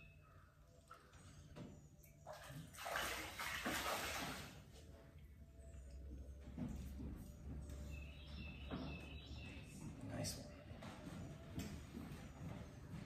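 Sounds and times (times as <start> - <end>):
water splashing and sloshing: 0.8 - 5.2.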